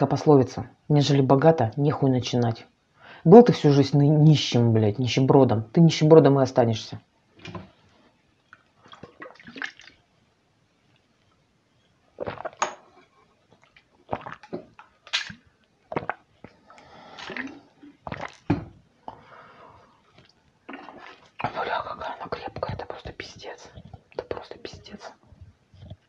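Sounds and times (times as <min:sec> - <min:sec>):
breathing: 0:02.9 - 0:03.3, 0:16.6 - 0:17.4, 0:19.1 - 0:20.0
swallowing and gulping: 0:12.2 - 0:19.3, 0:20.1 - 0:21.6.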